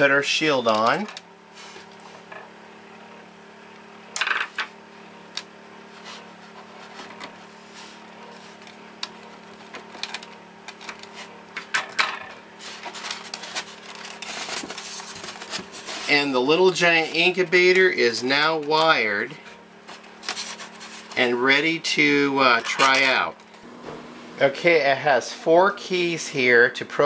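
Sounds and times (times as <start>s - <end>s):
steady low hum: 0.0s - 27.0s
clicks and rustles of plastic: 8.4s - 16.1s.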